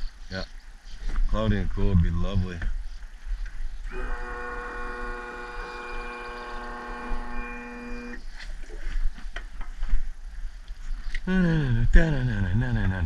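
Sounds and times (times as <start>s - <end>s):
outboard motor droning: 3.9s - 8.2s.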